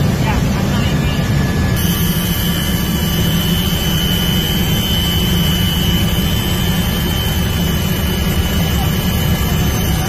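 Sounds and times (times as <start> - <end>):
helicopter engine and rotor drone: 0.0 - 10.0
high whine: 0.0 - 10.0.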